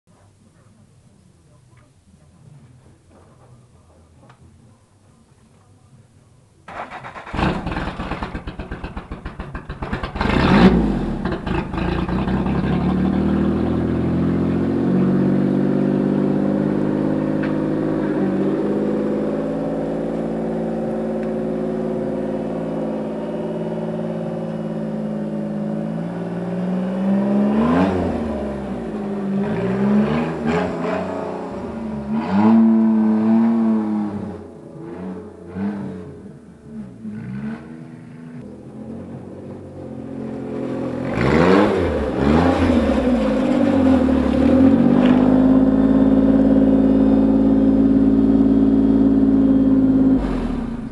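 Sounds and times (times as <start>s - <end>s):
engine cranking: 6.7s - 12.8s
tractor engine running and revving: 6.7s - 36.0s, 37.2s - 50.9s.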